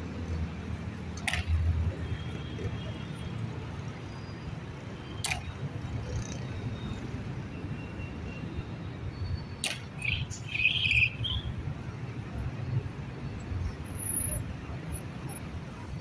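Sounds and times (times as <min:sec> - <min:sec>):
street traffic rumbling: 0:00.0 - 0:16.0
sharp clack: 0:01.2 - 0:01.6, 0:05.2 - 0:05.5, 0:09.6 - 0:10.0
bird chirping: 0:10.0 - 0:11.5.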